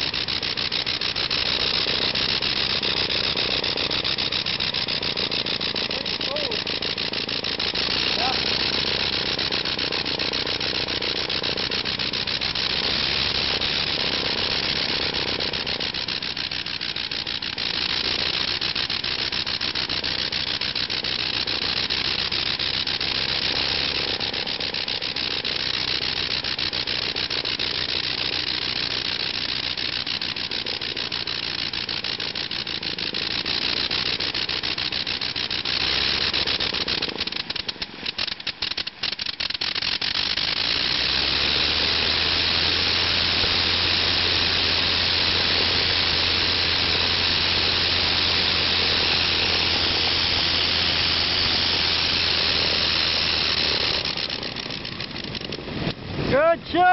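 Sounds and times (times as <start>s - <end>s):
rotary aircraft engine running: 0.0s - 56.9s.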